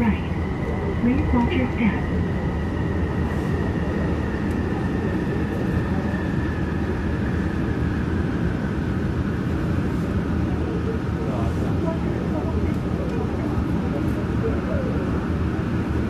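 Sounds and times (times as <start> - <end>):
high-pitched train whine: 0.0 - 9.9
train rumbling: 0.0 - 16.0.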